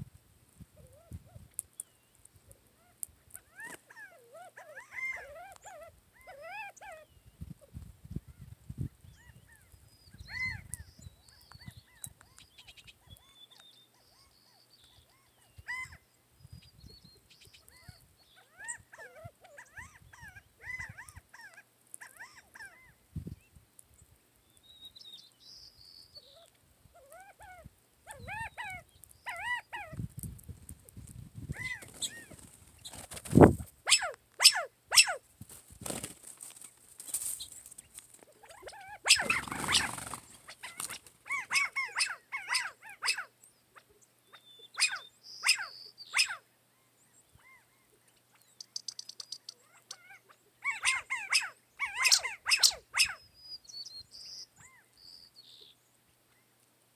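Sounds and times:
small birds chirping: 0.8 - 56.7
quail calling: 2.8 - 7.1, 9.2 - 10.9, 11.5 - 16.0, 17.6 - 23.0, 26.2 - 30.0, 31.5 - 33.1, 33.8 - 35.2, 38.2 - 46.4, 48.7 - 53.3.

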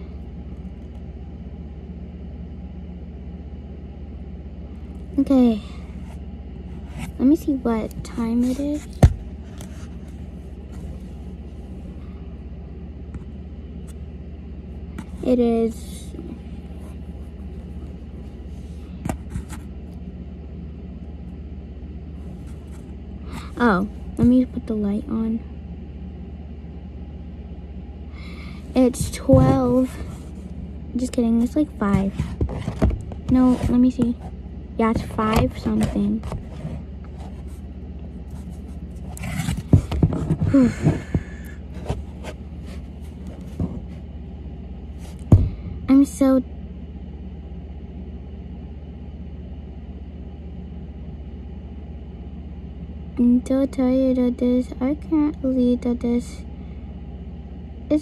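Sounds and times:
steady low hum: 0.0 - 58.0
phone scraping against cardboard: 31.9 - 34.3, 38.3 - 44.0.

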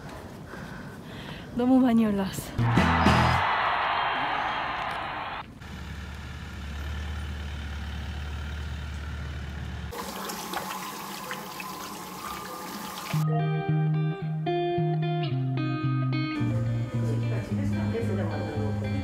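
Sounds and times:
tap water running into basin: 9.9 - 13.2
guitar music: 13.2 - 19.0.

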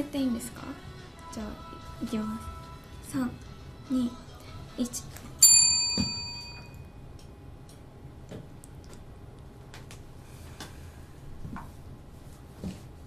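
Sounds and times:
bright bell-like chime: 5.4 - 6.9.

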